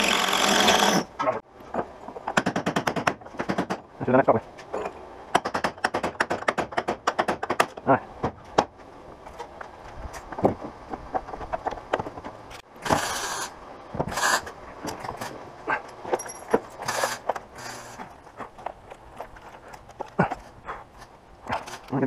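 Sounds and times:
boat hardware clanking and creaking: 0:14.8 - 0:20.6.

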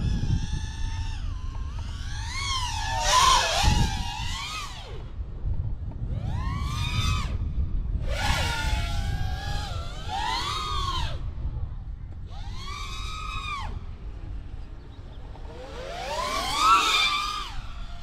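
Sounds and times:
drone motors whining: 0:00.0 - 0:18.0
wind buffeting microphone: 0:00.0 - 0:18.0.

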